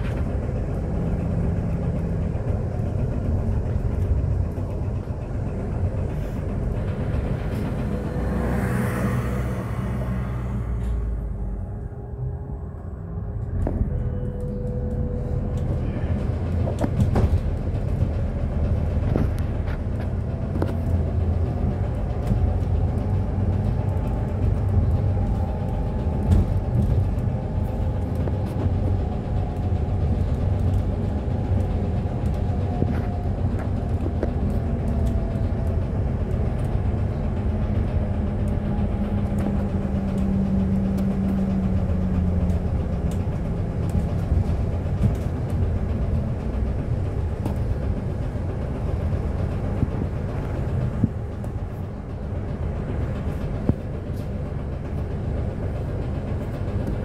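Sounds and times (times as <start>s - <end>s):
low rumble of bus: 0.0s - 57.0s
rattles and knocks: 13.4s - 57.0s.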